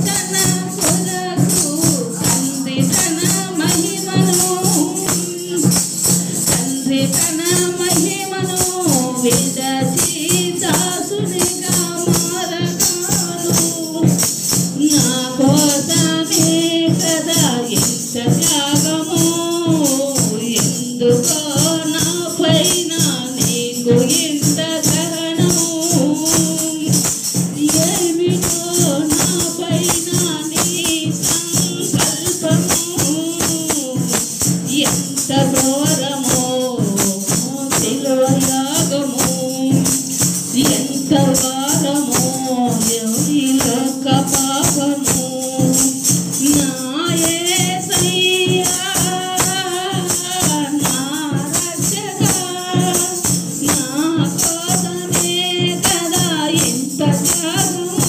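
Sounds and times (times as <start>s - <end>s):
rhythmic hand clapping: 0.0s - 58.0s
woman singing devotional song: 0.0s - 58.0s.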